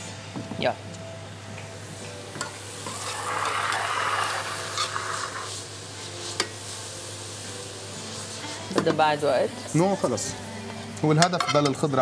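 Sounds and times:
food sizzling on hot surface: 1.7s - 12.0s.

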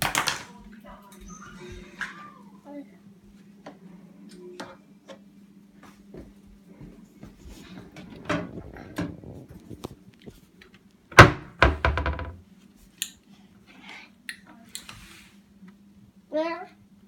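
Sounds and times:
cabinet door thunk: 11.2s - 12.4s.

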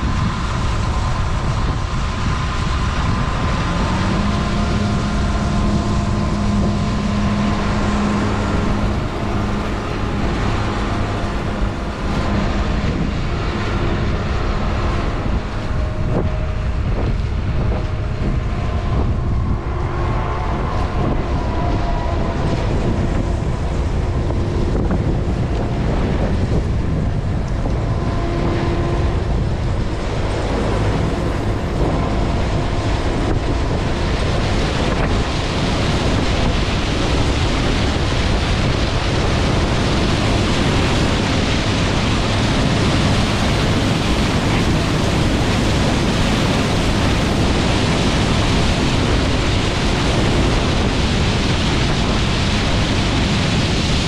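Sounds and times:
combine harvester roaring: 0.0s - 54.0s
wind on microphone: 0.0s - 54.0s.

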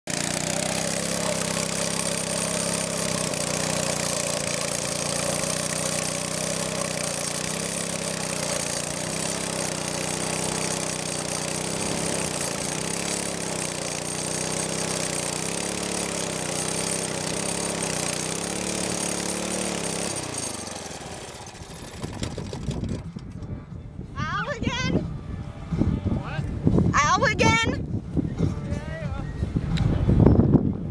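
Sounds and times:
small gasoline engine running: 0.0s - 23.5s.

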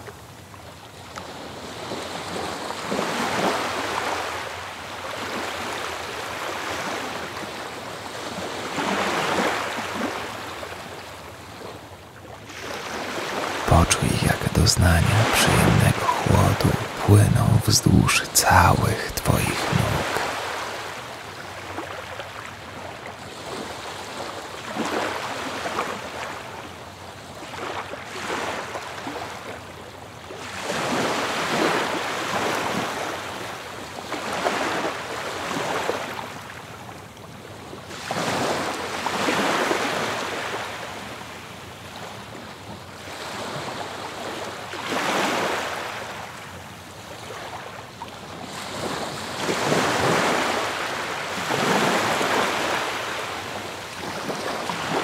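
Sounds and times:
ocean waves washing onto beach: 0.1s - 13.7s, 30.3s - 55.0s.

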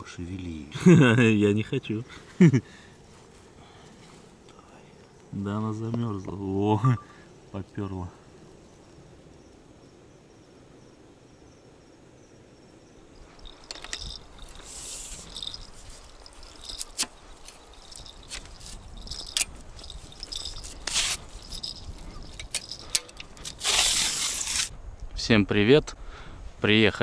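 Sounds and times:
crickets chirring: 0.0s - 27.0s
footsteps on grass: 3.1s - 4.4s, 13.3s - 22.3s
rustling: 13.2s - 24.7s
sharp handling clicks: 16.4s - 24.7s.

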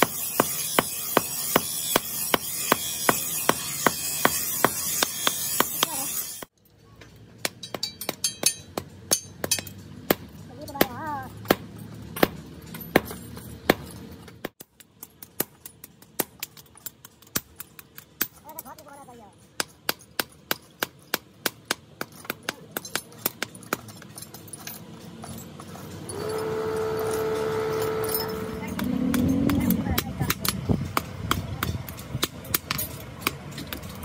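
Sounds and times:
hammer clinking on anvil: 0.0s - 6.4s, 7.4s - 9.8s.

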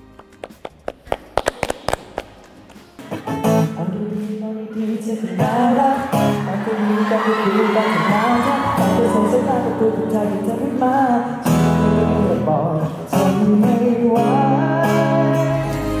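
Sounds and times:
acoustic guitar strumming: 0.0s - 16.0s
hand claps: 0.2s - 3.1s
man singing into a microphone: 3.6s - 16.0s.

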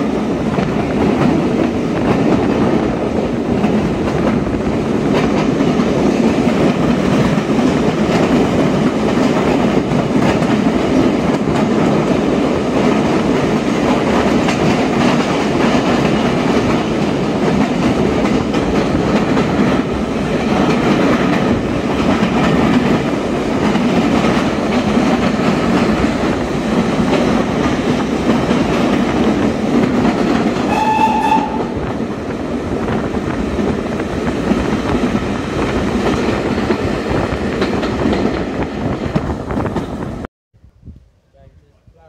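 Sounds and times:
train wheels rumbling on rails: 0.0s - 40.3s
steam locomotive whistle: 30.7s - 31.9s.

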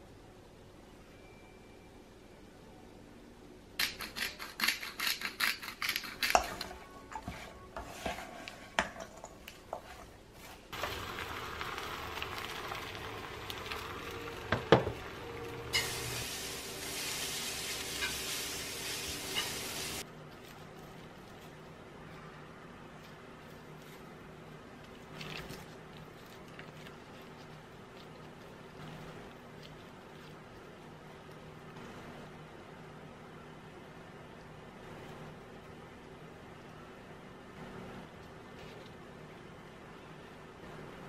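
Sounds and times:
food sizzling in a frying pan: 10.8s - 20.0s.

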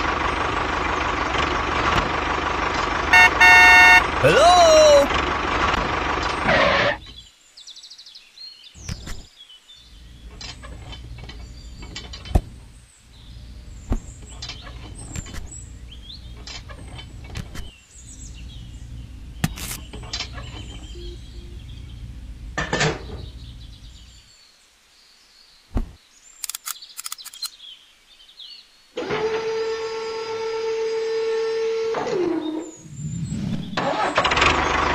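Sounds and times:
low steady hum: 9.8s - 24.3s
faint bird chirps: 17.6s - 22.1s, 23.1s - 29.0s.

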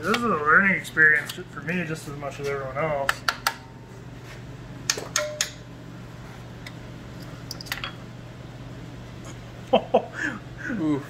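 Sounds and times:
steady low hum: 0.0s - 11.0s
metal tools clinking and clicking: 4.9s - 5.6s.

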